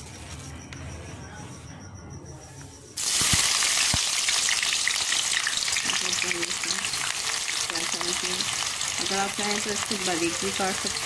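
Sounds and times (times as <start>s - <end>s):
onions sizzling in hot oil: 3.0s - 11.0s.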